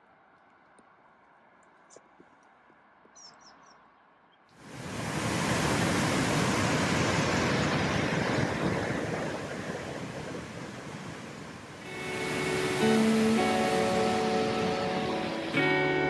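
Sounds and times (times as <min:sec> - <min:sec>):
white-water river rushing over rapids: 0:04.6 - 0:16.0.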